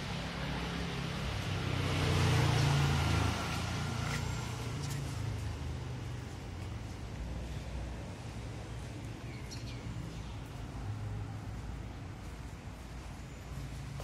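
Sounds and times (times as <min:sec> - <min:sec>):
vehicle passing: 0:00.0 - 0:07.0
street background noise: 0:00.0 - 0:14.0.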